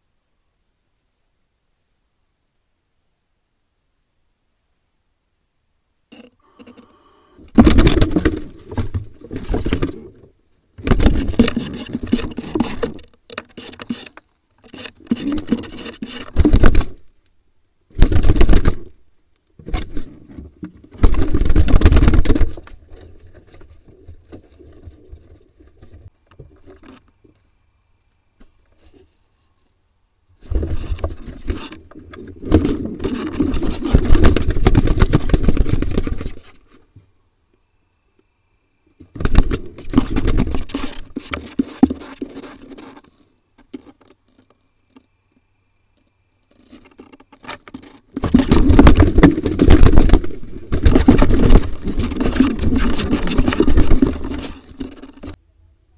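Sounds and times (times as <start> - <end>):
birds scuffling in a wooden box: 6.2 - 17.2, 17.9 - 19.0, 19.6 - 27.5, 30.4 - 36.9, 39.0 - 45.1, 46.0 - 55.4
wings flapping: 18.0 - 18.9, 32.3 - 36.6, 48.2 - 55.4.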